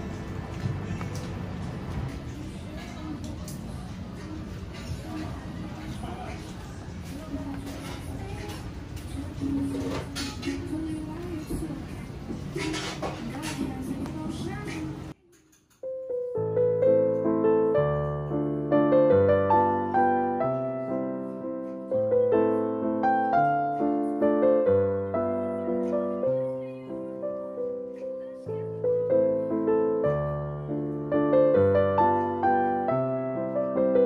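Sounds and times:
steady background noise: 0.0s - 15.8s
gentle solo piano: 15.8s - 34.0s.

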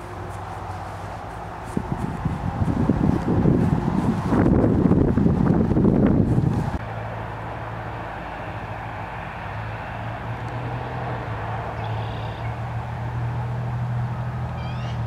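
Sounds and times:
wind buffeting microphone: 0.0s - 6.8s
steady low hum: 0.0s - 14.3s
outdoor background noise: 0.0s - 15.0s.

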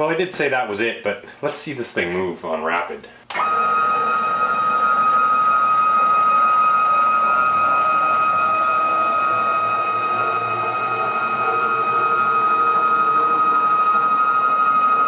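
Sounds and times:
stepper motors whining: 3.3s - 15.0s.

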